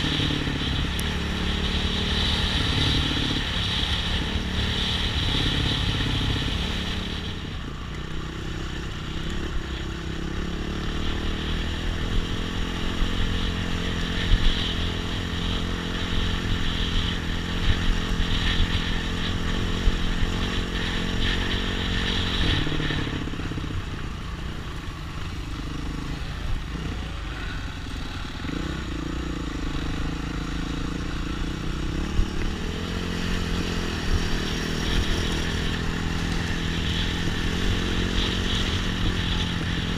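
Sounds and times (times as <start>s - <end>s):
motorcycle engine revving: 0.0s - 39.9s.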